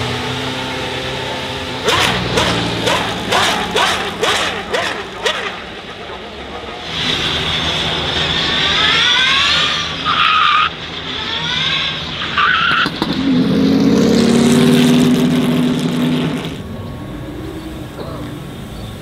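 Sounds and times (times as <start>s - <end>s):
tyres skidding: 0.0s - 19.0s
electric motors whining: 1.8s - 13.4s
low steady drone: 13.2s - 19.0s.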